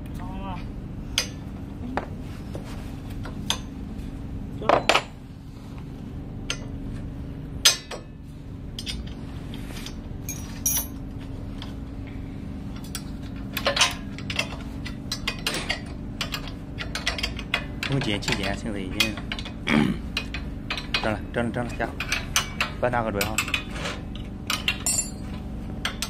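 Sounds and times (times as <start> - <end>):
steady low hum: 0.0 - 26.0
steel parts clinking and knocking: 10.3 - 11.0, 12.8 - 19.6, 22.0 - 26.0.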